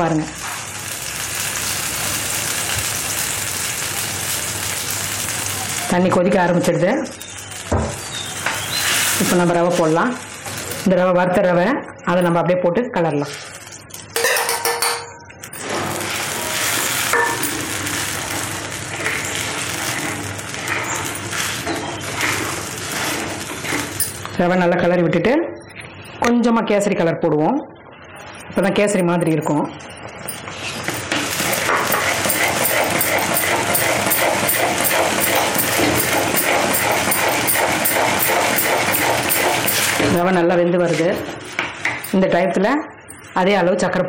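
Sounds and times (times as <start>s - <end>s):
pot boiling with bubbling hiss: 0.0s - 14.2s, 15.5s - 24.6s, 28.5s - 42.5s
metal spoon clinks: 14.2s - 15.3s
metal spoon scraping pot: 30.3s - 40.3s.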